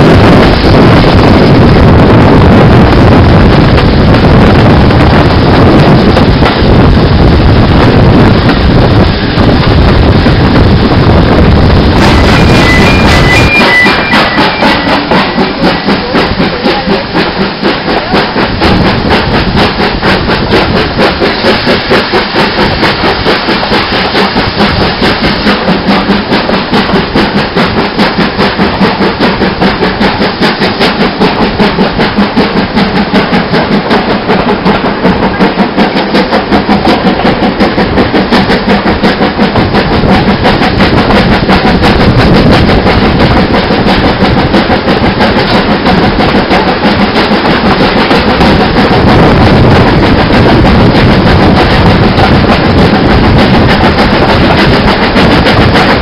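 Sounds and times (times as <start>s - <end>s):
rushing air hiss: 0.0s - 38.9s
steam locomotive exhaust beats: 0.0s - 56.0s
train coaches running on rails: 0.0s - 56.0s.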